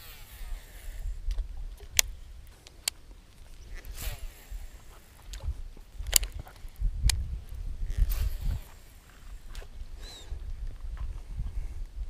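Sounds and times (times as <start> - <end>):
fishing reel spool whirring: 0.0 - 1.2
wind rumble on microphone: 0.0 - 2.6, 3.4 - 12.0
sharp clicks: 1.2 - 4.0, 5.2 - 8.3.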